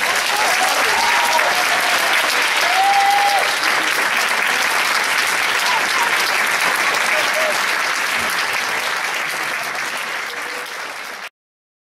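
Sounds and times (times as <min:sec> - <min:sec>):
crowd calling out: 0:00.0 - 0:03.8
audience applauding: 0:00.0 - 0:11.3.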